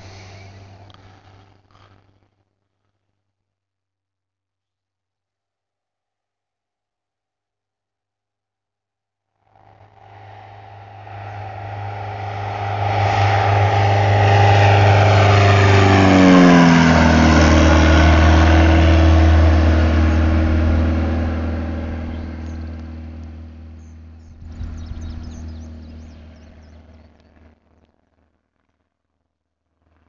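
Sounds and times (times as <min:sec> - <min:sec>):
light aircraft flyby: 0:00.0 - 0:02.0, 0:09.5 - 0:28.8.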